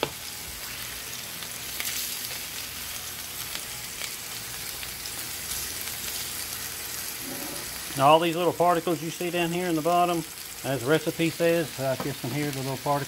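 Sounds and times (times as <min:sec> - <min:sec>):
meat sizzling in a skillet: 0:00.0 - 0:13.0.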